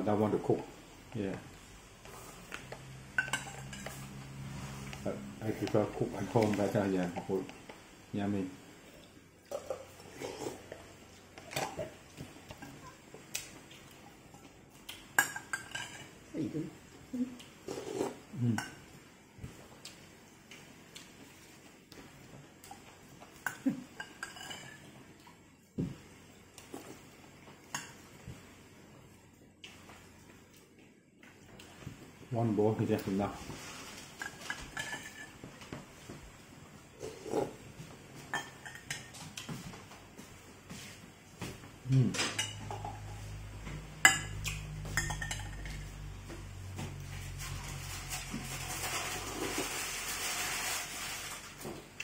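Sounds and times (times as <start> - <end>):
low steady hum: 0.0 - 52.0
metal spoon clinking on bowl: 3.2 - 4.0, 23.5 - 24.8, 44.0 - 45.9
spoon clinking on ceramic bowl: 44.0 - 45.8.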